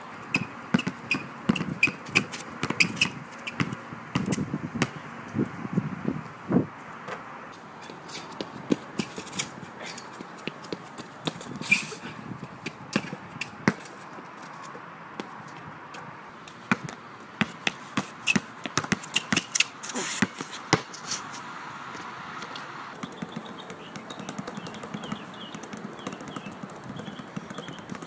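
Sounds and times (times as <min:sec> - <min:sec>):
basketball bouncing on hard court: 0:00.2 - 0:05.0, 0:12.6 - 0:13.9, 0:16.7 - 0:21.0, 0:23.0 - 0:28.0.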